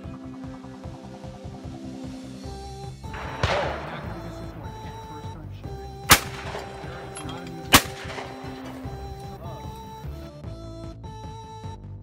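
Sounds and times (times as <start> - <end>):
background music: 0.0 - 12.0
shotgun shots: 3.2 - 9.8.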